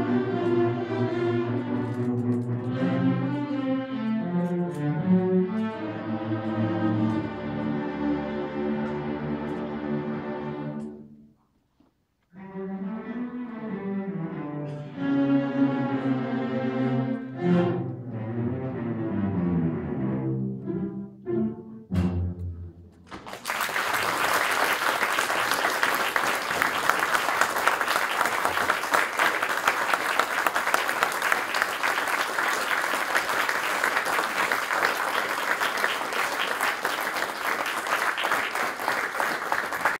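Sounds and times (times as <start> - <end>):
cello ensemble: 0.0 - 11.2, 12.2 - 23.0
audience applause: 23.1 - 40.0.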